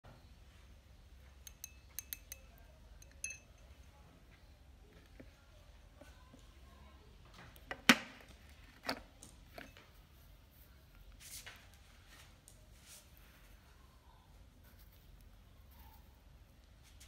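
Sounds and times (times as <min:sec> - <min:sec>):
glass lid clink: 0:01.4 - 0:03.6.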